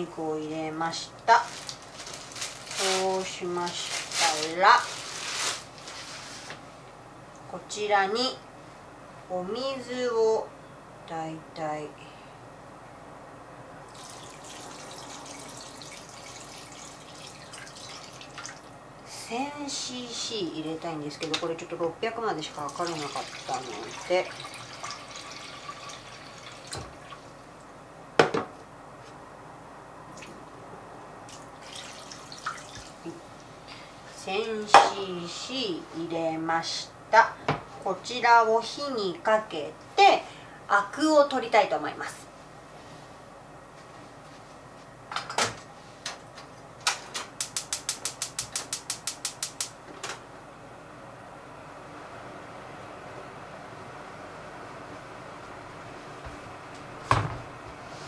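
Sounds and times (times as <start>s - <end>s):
water pouring and splashing into pot: 13.9s - 18.7s, 22.6s - 27.3s, 31.3s - 33.0s
gas flame hissing: 47.4s - 49.8s
spark igniter clicking: 47.4s - 49.8s.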